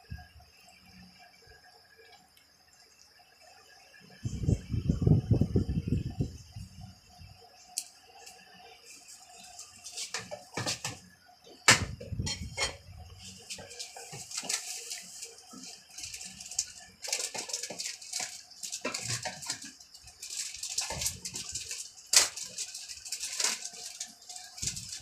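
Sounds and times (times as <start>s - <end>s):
steady hiss: 0.0s - 25.0s
parts knocking and clicking: 9.9s - 11.0s, 13.4s - 25.0s.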